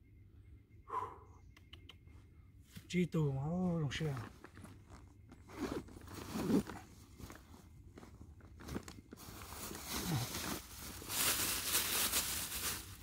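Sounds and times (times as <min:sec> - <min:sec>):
plastic bag crinkling: 0:08.4 - 0:13.0.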